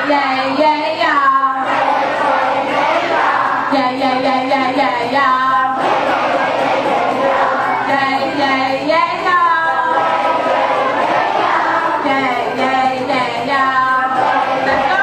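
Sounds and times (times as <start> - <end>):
woman singing into a microphone: 0.0 - 1.7, 3.4 - 5.8, 7.8 - 10.0, 11.8 - 15.0
children's noise in a hall: 0.0 - 15.0
group singing together: 0.0 - 15.0.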